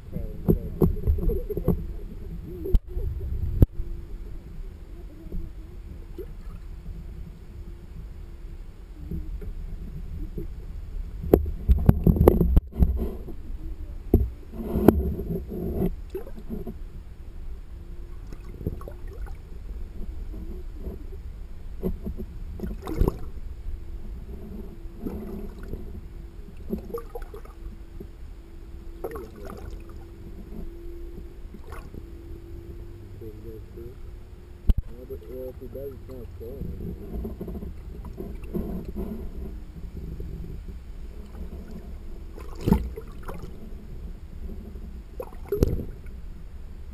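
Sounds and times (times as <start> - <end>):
steady hum: 0.0 - 46.9
underwater rumble of moving water: 0.0 - 46.9
underwater knocks and thumps: 0.4 - 3.7, 11.2 - 13.4, 14.1 - 16.8, 18.2 - 21.1, 21.8 - 23.4, 24.2 - 28.2, 29.0 - 32.1, 36.6 - 43.7, 45.2 - 46.2.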